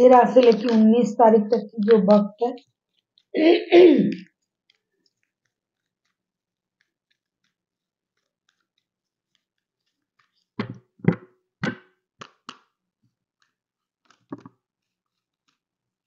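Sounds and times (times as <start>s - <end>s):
cards being shuffled: 6.8s - 11.2s
card slaps and flicks: 10.6s - 12.7s.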